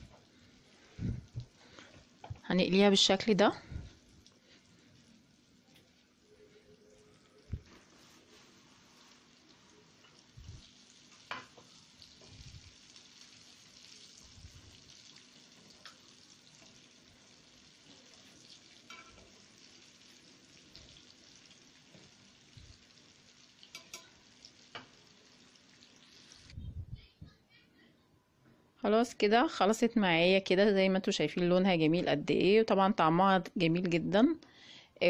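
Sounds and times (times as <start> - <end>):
meat sizzling in frying oil: 0.0 - 26.6
fork clicking on pan: 23.6 - 24.1.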